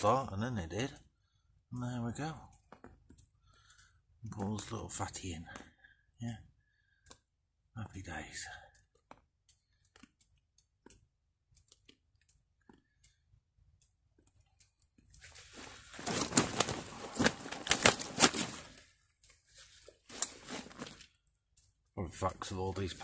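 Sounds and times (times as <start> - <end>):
small clicks: 1.7 - 4.5, 8.5 - 22.6
rustling and crackling: 14.1 - 23.0.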